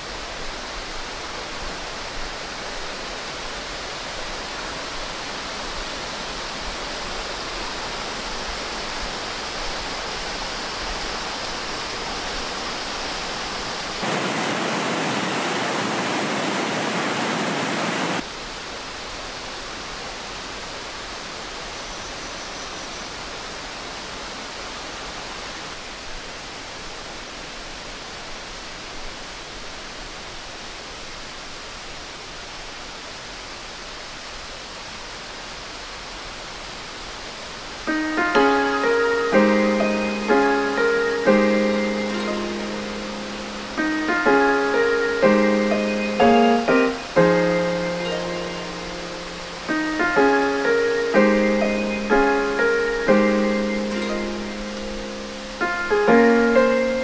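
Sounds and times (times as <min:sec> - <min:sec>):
water rushing in canal: 0:00.0 - 0:21.8.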